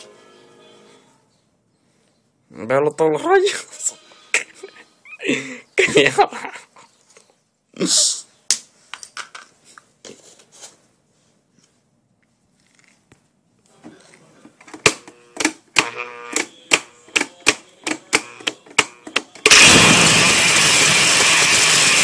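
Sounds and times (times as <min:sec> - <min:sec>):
motor blender churning: 0:19.5 - 0:22.0.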